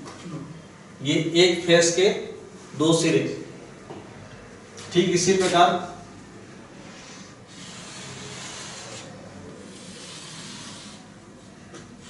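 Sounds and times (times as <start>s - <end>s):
chalk scraping on chalkboard: 7.0s - 11.2s.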